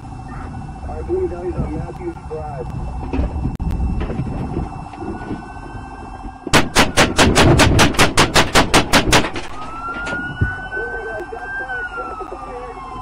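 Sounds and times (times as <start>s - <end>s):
rapid gunshots: 6.5s - 9.5s.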